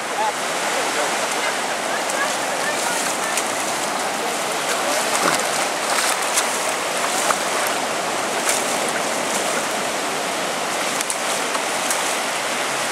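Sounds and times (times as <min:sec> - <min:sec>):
surf washing over sand: 0:00.0 - 0:12.9
small splashes: 0:01.0 - 0:12.9.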